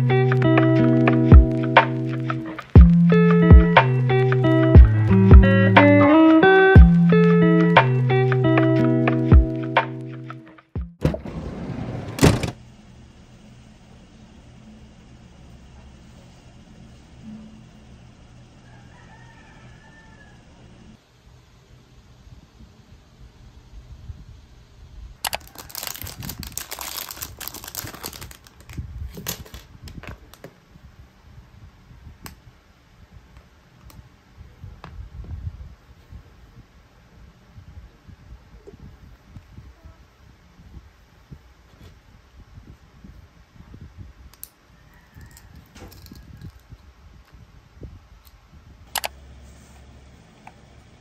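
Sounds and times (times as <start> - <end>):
plastic packaging crinkling: 25.2 - 29.7.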